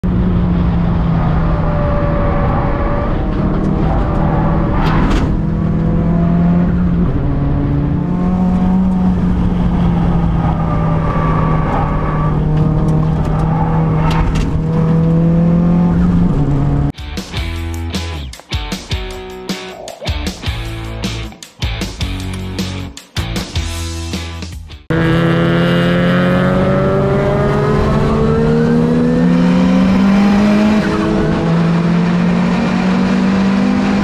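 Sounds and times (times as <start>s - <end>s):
car engine at high revs: 0.0s - 16.9s, 24.9s - 34.0s.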